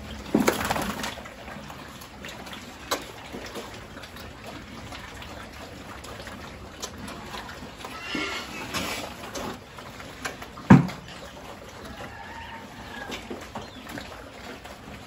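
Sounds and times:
pigs chomping and slurping: 0:00.0 - 0:15.0
pig grunt: 0:07.8 - 0:09.3.

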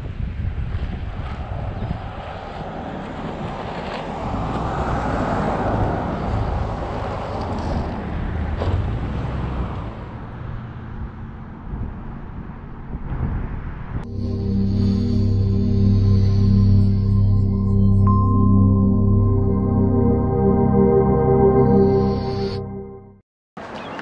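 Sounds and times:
wind noise on microphone: 0:00.0 - 0:08.8, 0:09.8 - 0:15.5
car engine and road rumble: 0:00.0 - 0:15.0.

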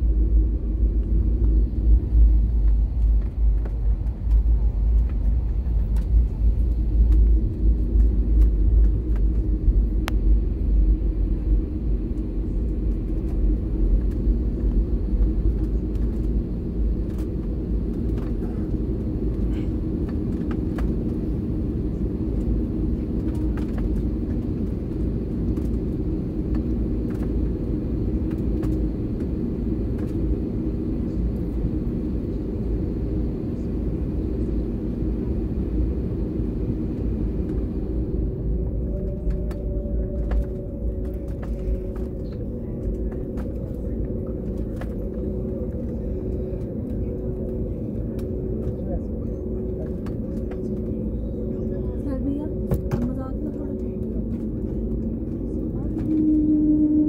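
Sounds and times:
jet engine drone and rumble: 0:00.0 - 0:57.0
steady hum: 0:00.0 - 0:57.0.

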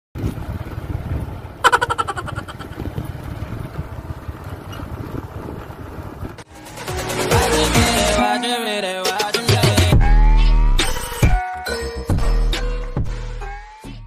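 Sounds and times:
motorcycle engine rumbling: 0:00.2 - 0:08.1.

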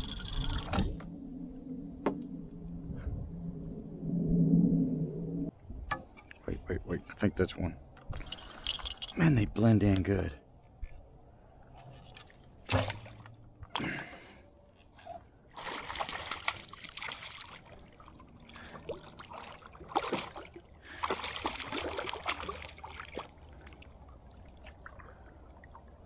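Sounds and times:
splashing and trickling water: 0:11.7 - 0:13.5, 0:15.5 - 0:26.0.

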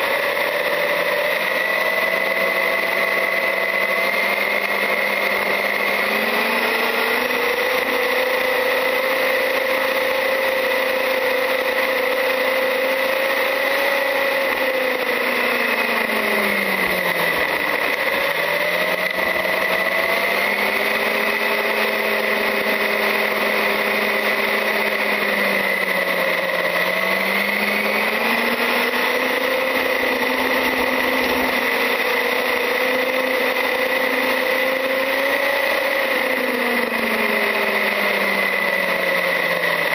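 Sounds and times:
toy truck electric motor whining: 0:00.0 - 0:39.9.

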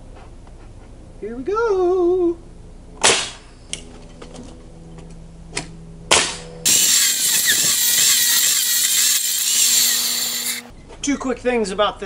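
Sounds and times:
pneumatic nail gun firing: 0:03.0 - 0:03.4, 0:06.1 - 0:10.7
table saw cutting wood: 0:06.7 - 0:10.7.

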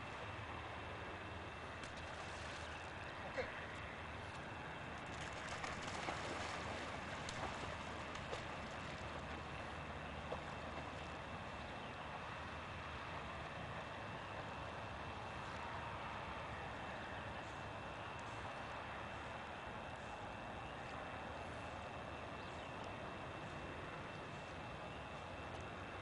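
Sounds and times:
outdoor background hiss: 0:00.0 - 0:26.0
dog splashing into water: 0:05.1 - 0:09.5.

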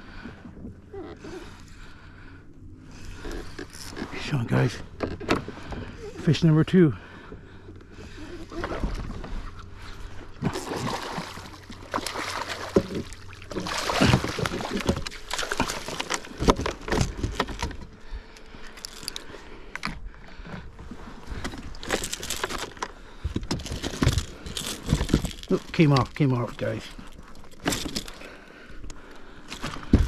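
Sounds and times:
water sloshing and splashing: 0:07.1 - 0:30.0
gear knocking and rattling: 0:21.4 - 0:28.3.

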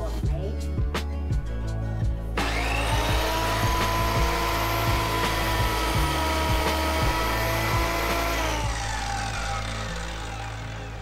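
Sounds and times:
background music with steady beat: 0:00.0 - 0:11.0
electric mitre saw motor: 0:02.4 - 0:11.0.

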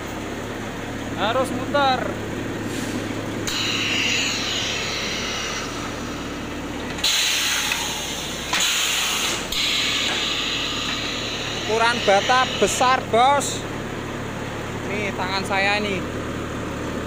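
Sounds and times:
machine humming: 0:00.0 - 0:17.0
compressed air hissing: 0:02.6 - 0:04.0, 0:07.0 - 0:12.9.

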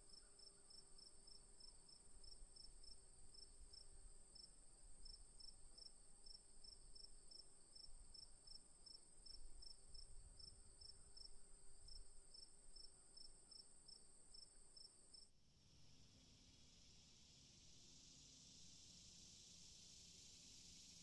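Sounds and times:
pulsed cricket chirp: 0:15.9 - 0:21.0.

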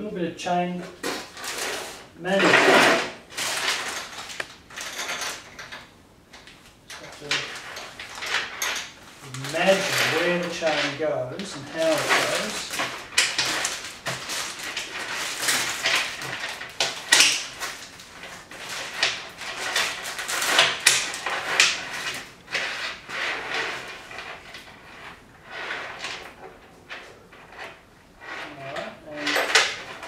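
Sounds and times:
bicycle chain rattling and scraping: 0:01.0 - 0:30.0.

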